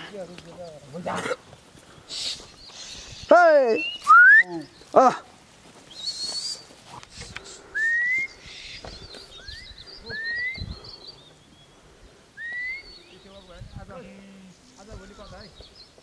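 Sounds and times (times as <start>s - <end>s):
rising whistles: 2.8s - 4.7s, 5.9s - 6.7s, 7.7s - 11.4s, 12.4s - 13.3s.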